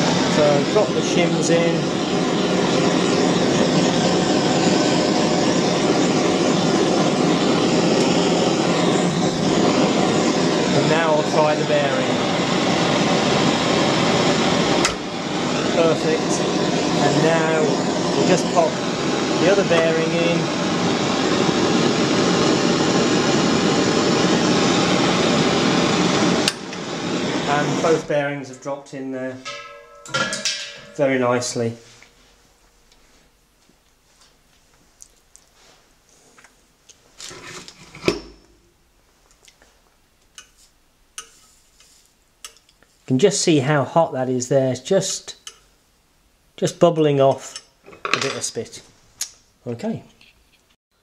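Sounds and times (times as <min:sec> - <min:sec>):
blowtorch flame rushing: 0:00.0 - 0:31.8.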